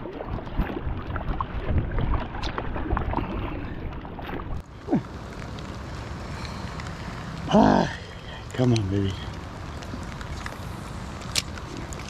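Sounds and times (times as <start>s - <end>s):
oars pulling through water: 0.0s - 12.0s
rain taps: 4.6s - 12.0s.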